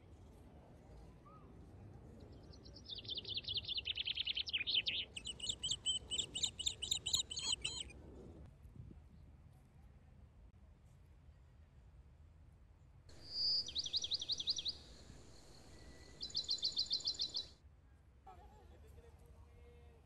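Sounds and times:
faint outdoor background noise: 0.0s - 20.0s
songbird trilling: 3.0s - 7.9s, 13.2s - 17.5s.

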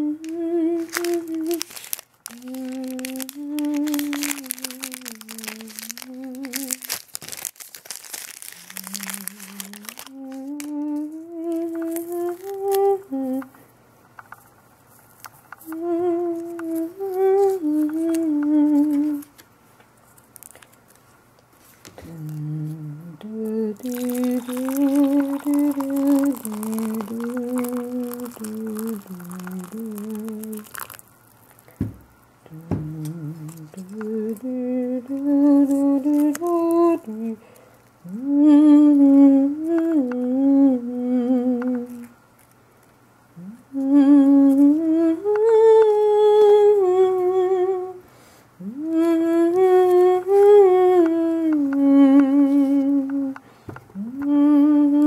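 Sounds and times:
person humming: 0.0s - 13.6s, 15.6s - 19.4s, 22.0s - 31.0s, 31.8s - 42.2s, 43.4s - 48.0s, 48.6s - 55.0s
water poured into teacup: 23.8s - 31.6s.

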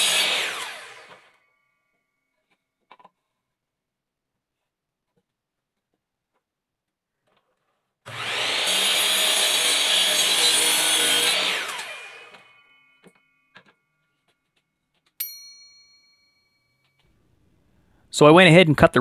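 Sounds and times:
miter saw cutting wood: 0.0s - 1.5s, 8.1s - 13.8s
saw spinning down with falling whine: 0.0s - 1.7s, 8.1s - 13.6s
sharp clack with metallic ring: 15.2s - 17.0s.

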